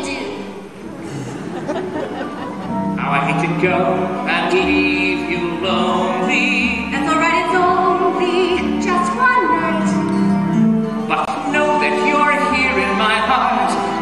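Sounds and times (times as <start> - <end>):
orchestral accompaniment: 0.0 - 14.0
soprano singing operatic style: 3.0 - 14.0.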